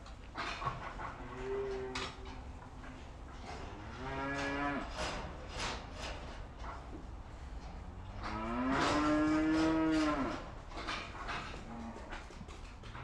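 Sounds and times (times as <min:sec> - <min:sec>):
cows mooing: 0:01.1 - 0:02.3, 0:03.5 - 0:04.9, 0:08.0 - 0:10.4.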